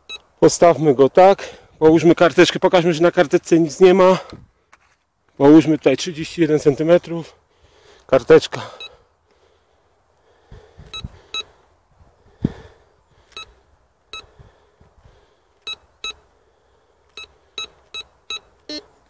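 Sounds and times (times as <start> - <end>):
metal detector beeps: 0.0 - 0.3, 8.7 - 9.0, 10.9 - 11.5, 13.3 - 14.3, 15.6 - 16.2, 17.1 - 19.0.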